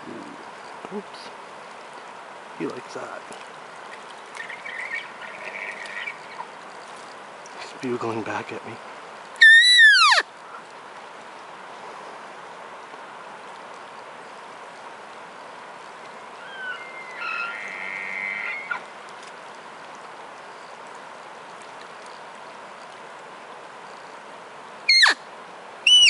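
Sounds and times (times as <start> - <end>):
elk bugling: 4.4 - 6.6, 9.4 - 10.2, 16.4 - 18.9, 24.9 - 25.2.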